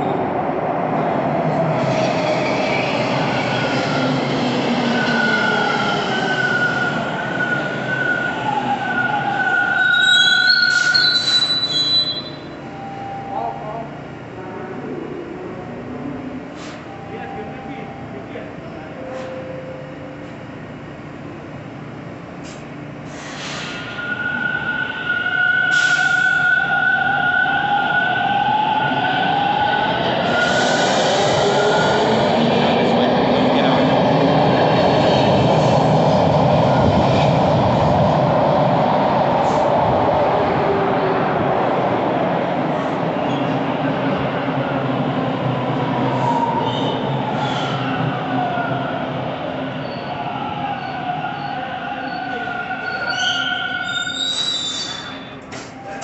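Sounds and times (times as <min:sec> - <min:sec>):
subway train rumble: 0:00.0 - 0:56.0
wheel and brake squeal: 0:09.7 - 0:12.5, 0:50.8 - 0:55.4
air hissing: 0:22.4 - 0:24.0.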